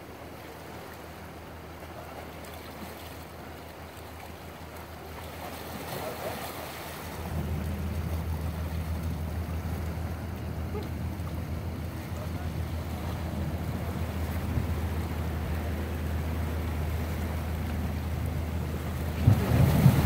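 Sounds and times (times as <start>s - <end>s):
sea washing against rocks: 0.5s - 20.0s
low rumble: 7.1s - 20.0s.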